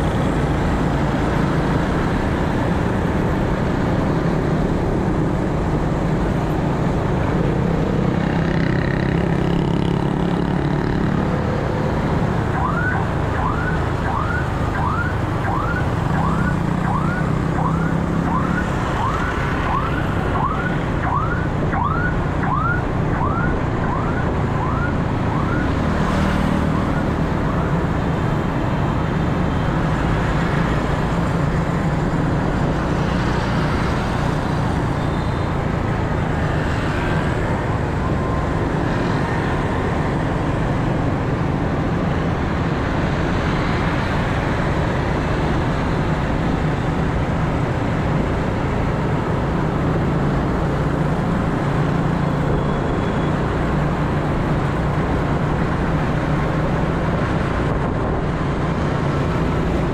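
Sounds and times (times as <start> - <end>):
wind and road noise: 0.0 - 59.9
emergency siren yelping: 12.4 - 28.0.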